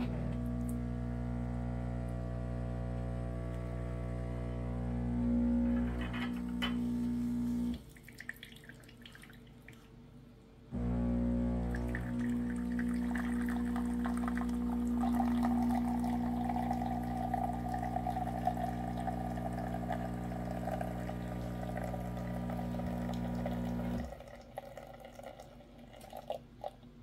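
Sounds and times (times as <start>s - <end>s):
espresso machine pump humming: 0.0s - 7.8s, 10.8s - 26.3s
espresso splashing into mug: 11.6s - 26.4s
coffee dripping: 11.6s - 27.0s.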